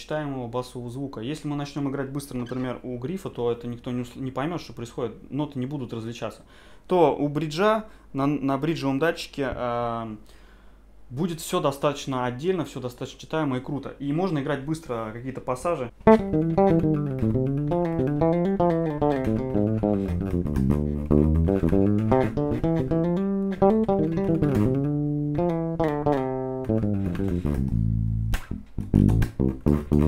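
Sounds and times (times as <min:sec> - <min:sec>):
bass guitar fingerstyle: 0:15.8 - 0:30.0.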